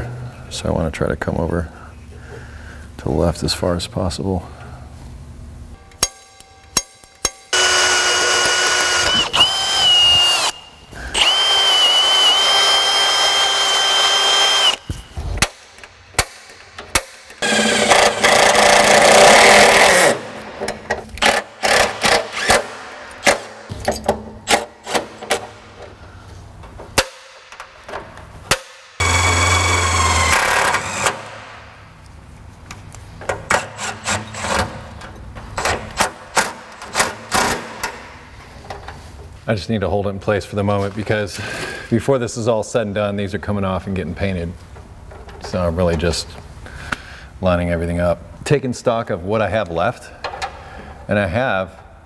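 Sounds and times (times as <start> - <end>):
cordless drill whining: 7.5 - 14.9, 29.0 - 31.2.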